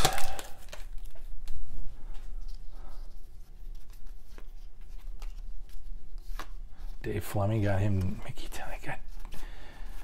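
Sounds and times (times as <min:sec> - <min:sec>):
cards being flipped by hand: 0:00.0 - 0:07.0.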